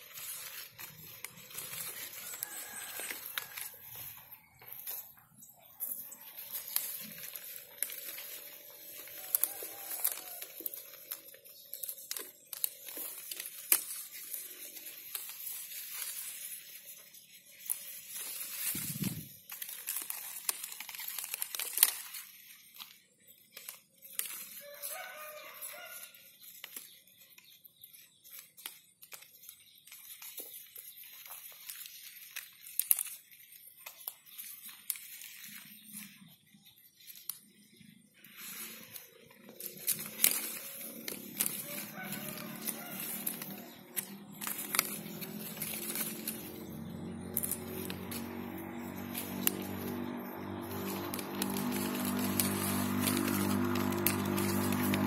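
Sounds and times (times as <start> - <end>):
leaves rustling: 0.0 - 27.2, 27.9 - 55.0
buds snapping off twigs: 6.1 - 15.6, 39.4 - 55.0.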